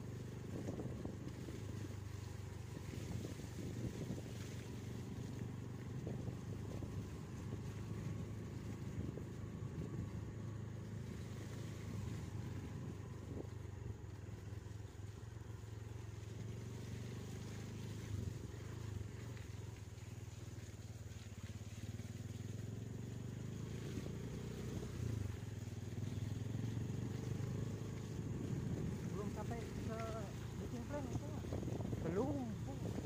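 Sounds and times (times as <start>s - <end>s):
van engine running: 0.0s - 0.9s.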